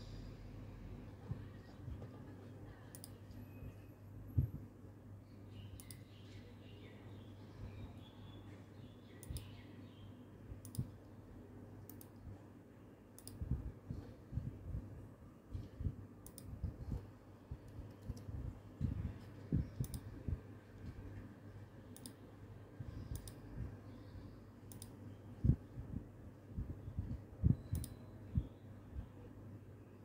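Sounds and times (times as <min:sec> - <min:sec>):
faint steady low hum: 0:00.0 - 0:30.0
computer mouse clicks: 0:02.9 - 0:03.3, 0:05.7 - 0:06.2, 0:09.2 - 0:09.6, 0:10.6 - 0:11.2, 0:11.8 - 0:12.3, 0:13.1 - 0:13.6, 0:15.5 - 0:17.0, 0:17.6 - 0:20.2, 0:21.9 - 0:22.2, 0:22.9 - 0:23.5, 0:24.6 - 0:25.1, 0:27.6 - 0:28.0
soft low thumps: 0:15.7 - 0:20.5.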